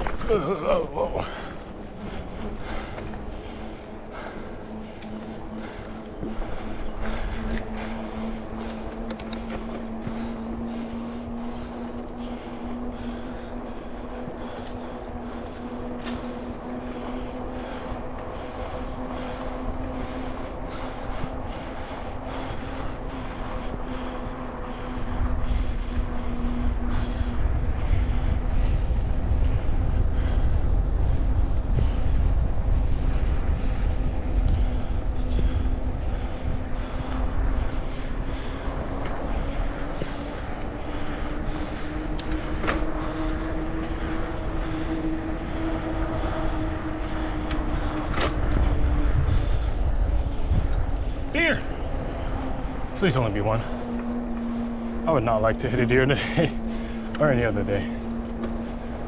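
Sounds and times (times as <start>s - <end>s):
tyre and wind noise: 0.0s - 59.0s
vehicle motor hum: 0.0s - 59.0s
sharp ticks: 8.6s - 10.4s, 42.1s - 42.8s, 47.4s - 48.6s
electric motor whine: 33.6s - 59.0s.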